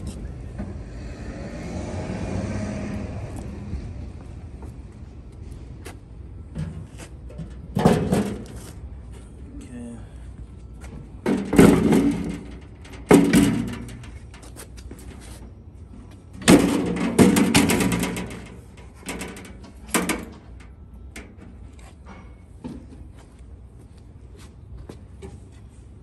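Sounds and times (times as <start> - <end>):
sheet metal cover clattering: 11.3 - 14.1, 16.4 - 20.4.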